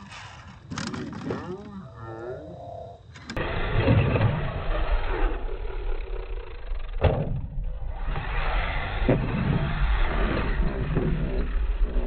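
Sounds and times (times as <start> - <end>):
radio-controlled truck driving on dirt: 3.0 - 12.0.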